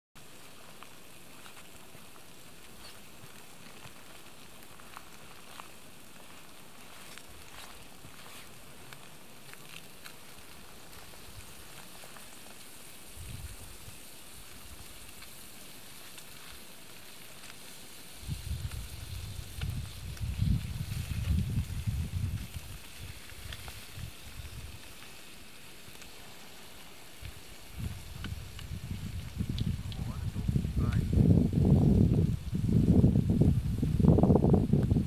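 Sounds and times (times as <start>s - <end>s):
fish sizzling in a pan: 9.5s - 29.6s
wind rumbling on microphone: 9.9s - 15.3s, 16.4s - 25.2s, 26.1s - 35.0s.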